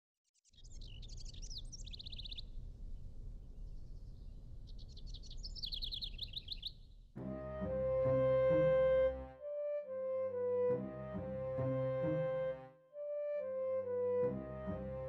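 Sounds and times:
small birds chirping: 0.3s - 7.1s
low background rumble: 1.0s - 8.0s.

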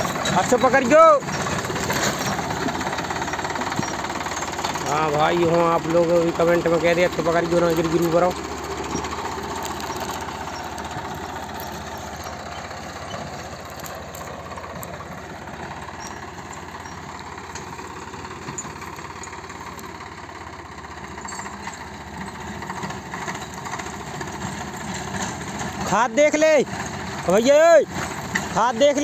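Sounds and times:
tractor diesel engine running: 0.0s - 29.0s.

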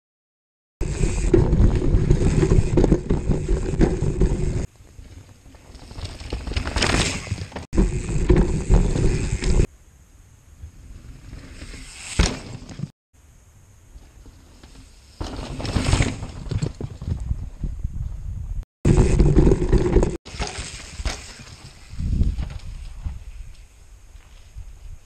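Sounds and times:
bike rider rushing past: 0.8s - 9.7s, 10.6s - 12.9s
bike tyres rumbling over dirt: 0.8s - 9.7s, 10.6s - 12.9s, 13.9s - 25.0s
bike frame rattle: 5.6s - 9.7s
wind on microphone: 16.6s - 19.3s, 21.8s - 23.6s.

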